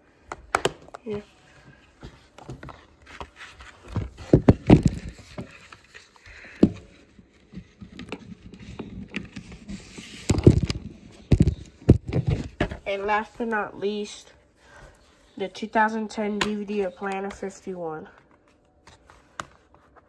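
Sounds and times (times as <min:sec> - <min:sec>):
objects being moved about: 0:00.8 - 0:13.2.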